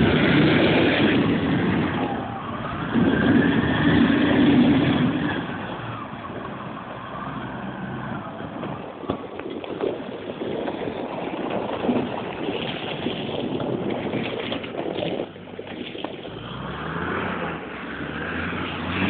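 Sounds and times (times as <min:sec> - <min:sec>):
rough rushing noise: 0:00.0 - 0:06.4
tractor diesel engine pulling: 0:00.0 - 0:19.0.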